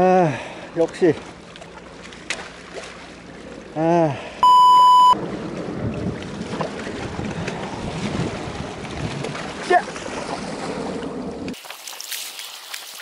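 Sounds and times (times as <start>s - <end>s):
wind: 0.0s - 13.0s
loud bleep: 4.4s - 5.2s
sea water lapping on rocks: 5.3s - 13.0s.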